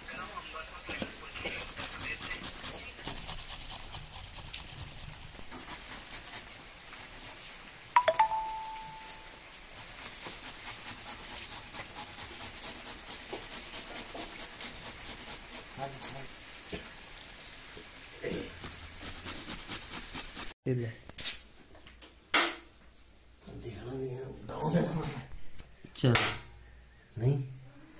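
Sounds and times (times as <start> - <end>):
carrots rasping on a metal grater: 1.4 - 7.5, 9.7 - 16.3, 18.6 - 20.5.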